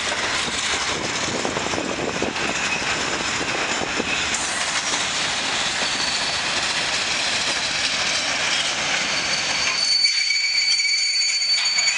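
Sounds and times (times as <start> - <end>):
freight train wheels rolling on rails: 0.0 - 11.9
high thin wheel squeal: 5.6 - 6.5, 8.0 - 11.9.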